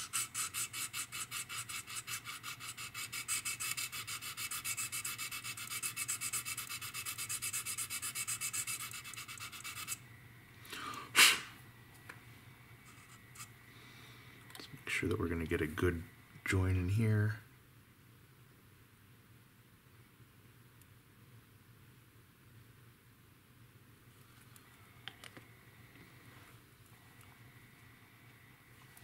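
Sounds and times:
sanding stick rubbing plastic: 0.0s - 10.0s.

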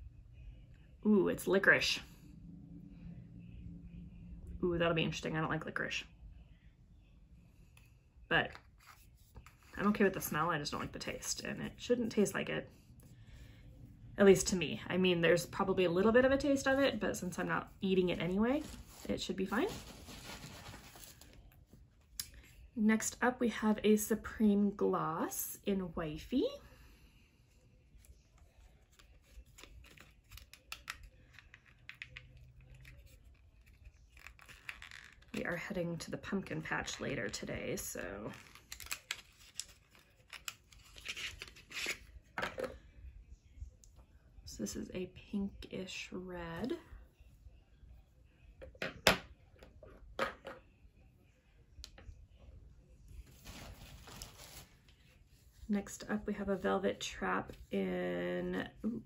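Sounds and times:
soft rustling: 18.1s - 22.0s, 53.1s - 57.7s.

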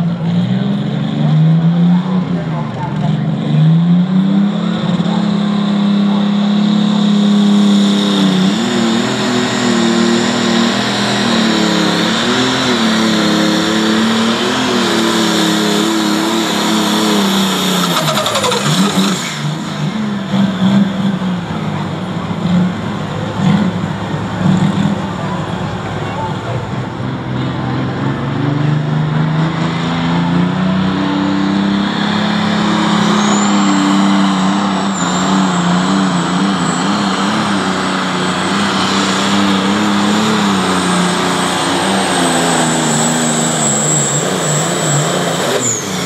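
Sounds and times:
tractor engine running flat out: 15.1s - 20.4s.

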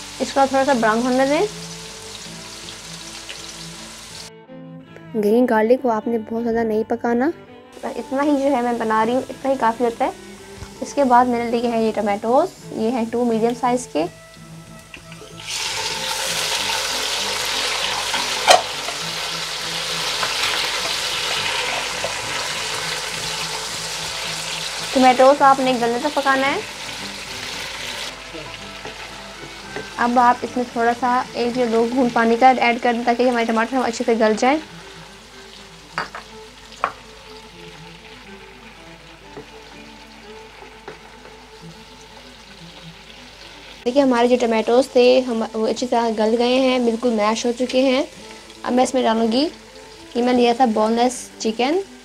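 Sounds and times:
tomatoes sizzling in oil: 0.0s - 4.3s, 7.8s - 52.0s
spatula knocking wok: 28.8s - 30.2s.

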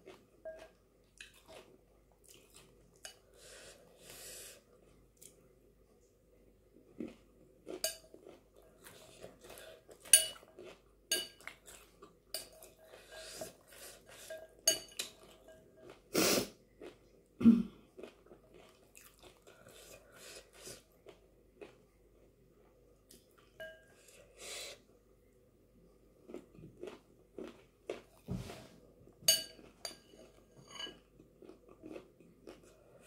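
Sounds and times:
chewing: 0.0s - 3.2s, 7.0s - 16.1s, 18.0s - 21.8s, 26.3s - 28.3s, 29.5s - 33.0s
breathing: 3.2s - 4.7s
spoon clinking on glass bowl: 10.2s - 10.4s, 14.7s - 15.6s, 23.6s - 23.9s, 29.3s - 31.0s.

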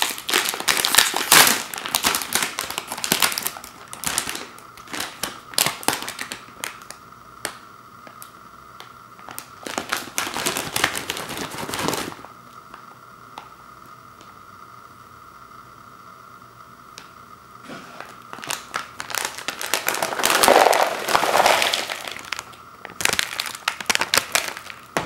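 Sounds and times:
plastic snack bag crinkling: 0.0s - 7.0s, 9.2s - 12.3s, 18.0s - 25.0s.

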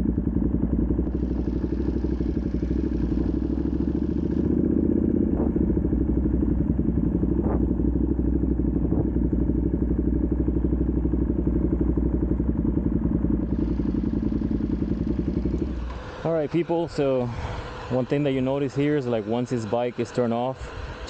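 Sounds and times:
motorcycle engine at low revs: 0.0s - 21.0s.

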